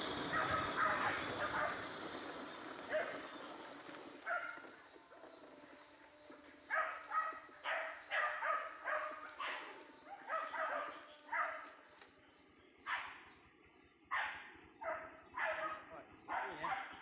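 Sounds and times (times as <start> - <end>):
high insect drone: 0.0 - 17.0
dog barking: 0.3 - 1.8, 4.3 - 4.6, 6.7 - 11.6, 12.9 - 13.2, 14.1 - 17.0.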